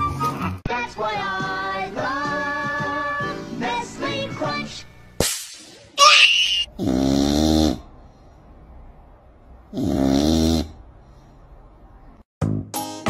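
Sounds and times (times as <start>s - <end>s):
cat snoring: 6.8s - 7.9s, 9.7s - 10.8s.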